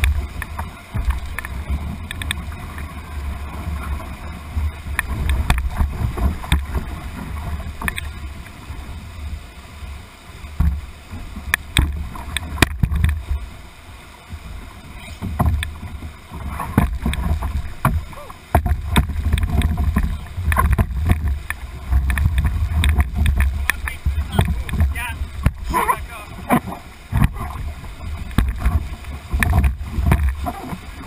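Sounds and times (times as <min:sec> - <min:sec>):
whitewater rapids rushing: 0:00.0 - 0:31.0.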